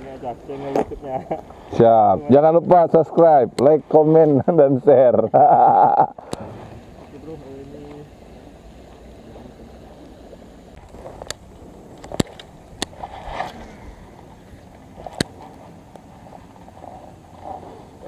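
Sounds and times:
low steady background: 0:00.0 - 0:18.0
short rustle: 0:12.9 - 0:18.0.

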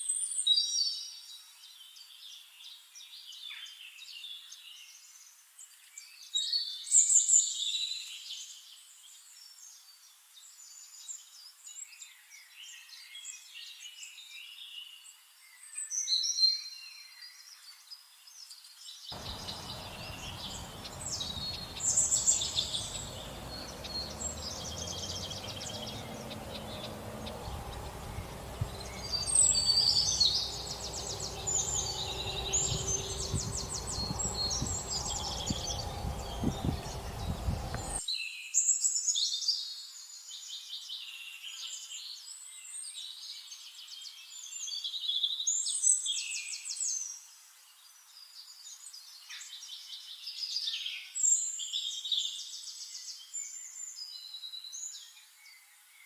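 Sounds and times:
birds chirping and calling: 0:19.2 - 0:38.0
steady low hum: 0:19.2 - 0:38.0.

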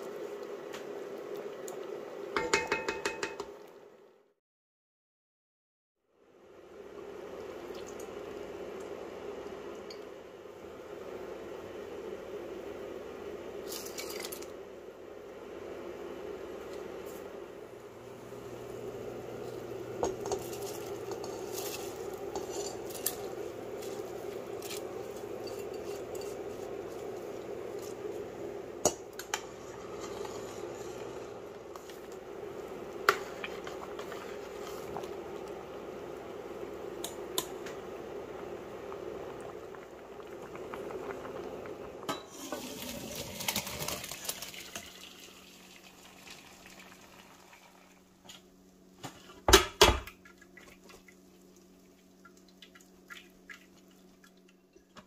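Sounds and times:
metal spoon clinking against pot: 0:02.4 - 0:03.5
water bubbling in a pot: 0:06.8 - 0:11.0, 0:17.8 - 0:48.2, 0:50.1 - 0:55.0.

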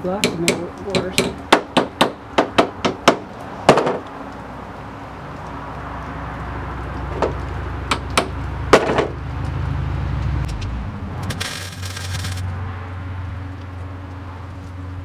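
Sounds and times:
steady low hum: 0:06.1 - 0:15.0
welder crackling: 0:10.5 - 0:12.6.

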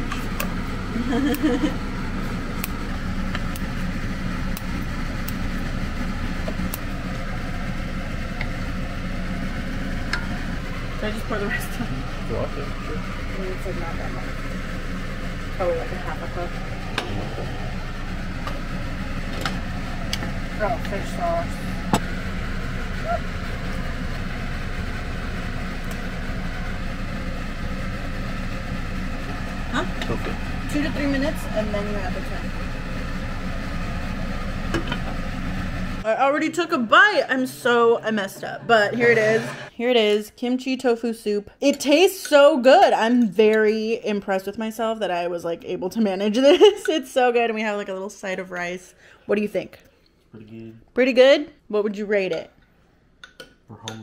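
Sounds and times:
low hum and rush: 0:00.0 - 0:40.1.

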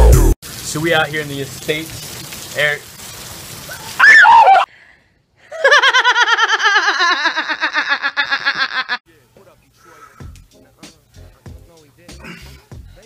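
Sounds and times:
short loud cry: 0:04.0 - 0:04.6
woman laughing hard: 0:05.5 - 0:09.0.

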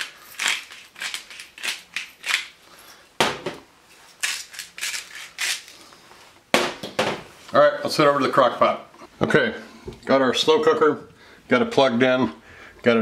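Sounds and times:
salt and pepper grinders grinding: 0:00.0 - 0:02.6, 0:04.1 - 0:05.7.

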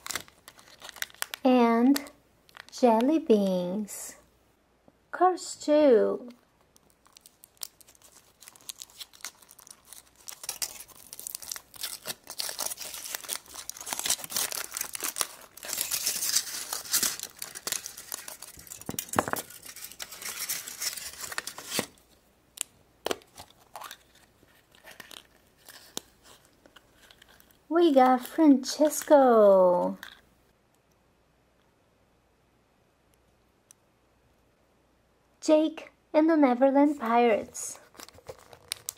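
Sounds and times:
wrapper tearing and crinkling: 0:00.0 - 0:02.8, 0:06.7 - 0:30.2, 0:37.8 - 0:38.9.

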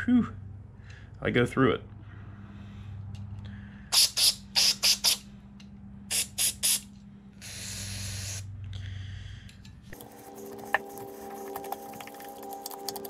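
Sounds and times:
aerosol spray bursts: 0:04.0 - 0:05.2, 0:06.1 - 0:08.5.

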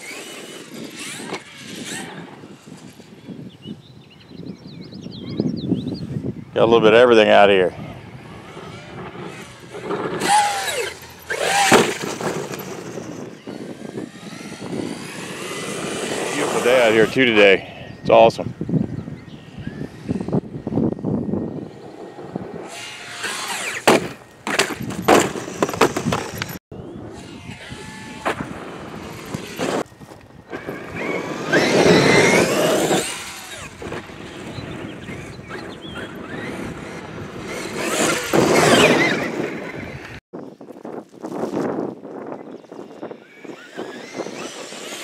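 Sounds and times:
electric motor whining: 0:00.0 - 0:03.8, 0:06.8 - 0:40.2, 0:42.7 - 0:45.0
tyres churning dirt: 0:07.0 - 0:17.5, 0:27.2 - 0:40.2.

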